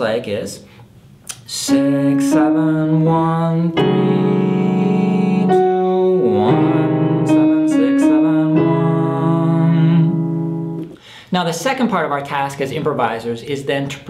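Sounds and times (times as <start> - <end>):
man singing: 1.3 - 10.4
slow piano melody: 1.7 - 11.0.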